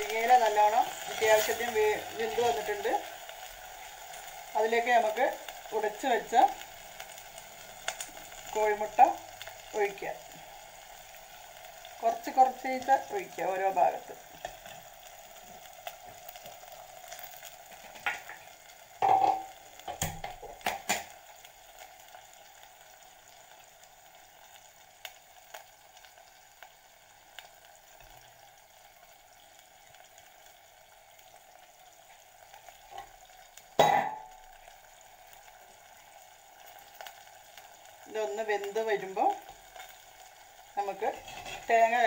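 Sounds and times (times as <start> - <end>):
leaves simmering in water: 0.0 - 42.0
utensils knocking against pot: 19.0 - 21.1.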